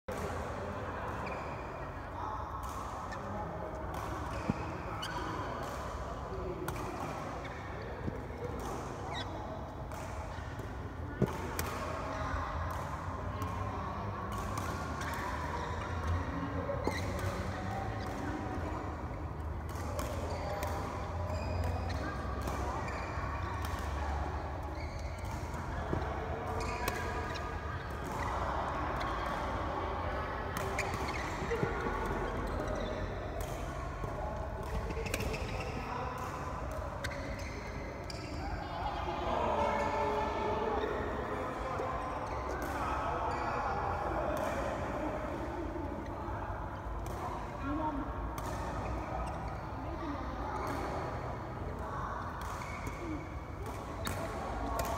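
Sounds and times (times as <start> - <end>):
rackets hitting shuttlecock: 0.1 - 0.5, 2.6 - 13.7, 14.3 - 28.4, 30.6 - 38.2, 44.4 - 45.6, 50.6 - 54.9
shoe squeak on court: 9.1 - 9.4, 20.3 - 20.5, 22.8 - 23.6, 24.7 - 25.2, 30.8 - 31.6, 37.0 - 38.4.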